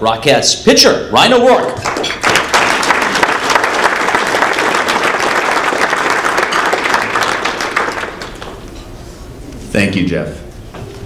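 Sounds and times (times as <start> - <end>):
audience applauding: 1.8 - 8.6.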